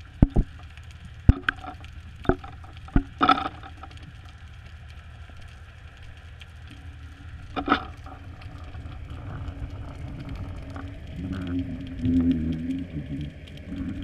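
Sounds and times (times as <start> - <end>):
steady low underwater hum: 0.0 - 14.0.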